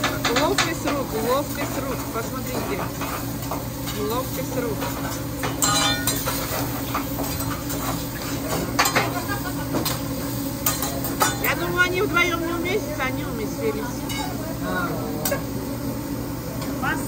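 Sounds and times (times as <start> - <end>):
faint sizzling: 0.0 - 17.0
steady low hum: 0.0 - 17.0
spatula and knife scraping griddle: 4.8 - 9.1
ringing metal clang: 5.6 - 6.3.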